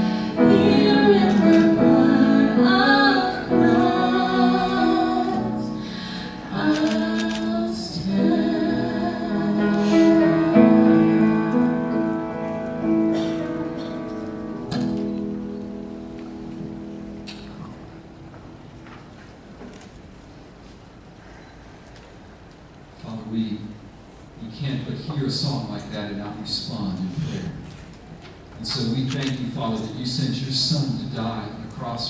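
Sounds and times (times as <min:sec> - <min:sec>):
woman singing slow song: 0:00.0 - 0:11.9
instrumental accompaniment: 0:08.3 - 0:19.4.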